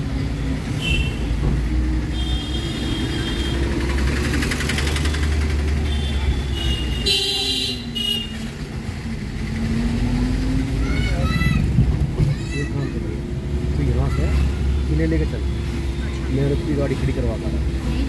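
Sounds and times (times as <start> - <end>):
engine and road rumble: 0.0 - 18.0
car horns honking: 0.7 - 1.4, 2.0 - 3.9, 5.0 - 8.6.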